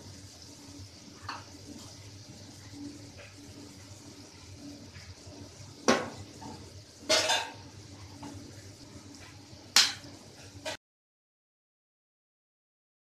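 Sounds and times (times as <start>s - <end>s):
faint sizzle in pan: 0.0s - 10.8s.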